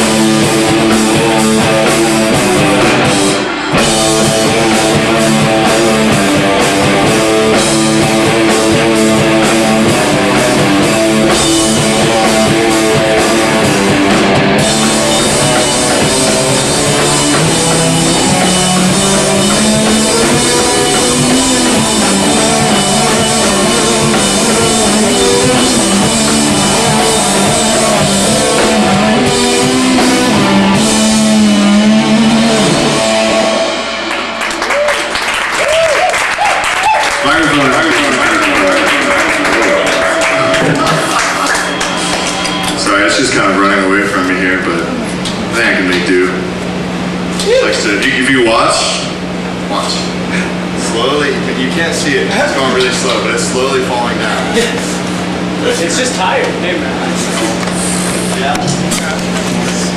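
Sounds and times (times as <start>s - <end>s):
drum kit: 0.0s - 44.2s
electric guitar: 0.0s - 48.2s
bass guitar: 0.0s - 59.9s.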